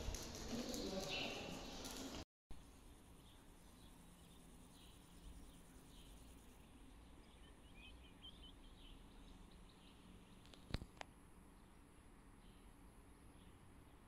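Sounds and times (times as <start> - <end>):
faint bird chirps: 3.1 - 10.7.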